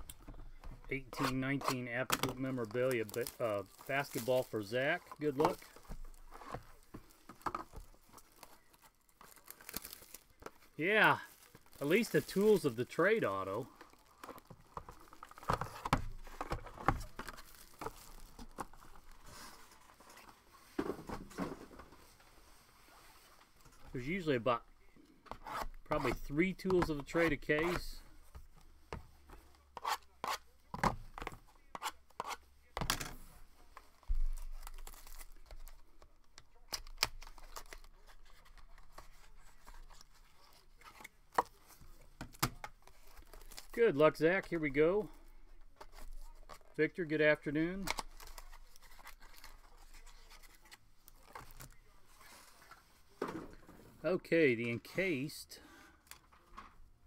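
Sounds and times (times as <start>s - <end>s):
soft rustle of foil packs: 1.9s - 15.5s, 16.2s - 20.8s, 33.2s - 53.2s
foil wrapper crinkling and tearing: 2.2s - 6.9s, 7.8s - 15.5s, 17.0s - 18.7s, 34.4s - 38.5s.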